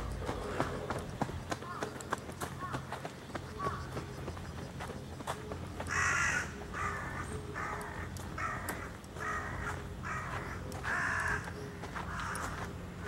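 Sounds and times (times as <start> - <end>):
crow cawing: 1.6 - 2.0, 2.6 - 4.0, 5.8 - 12.7.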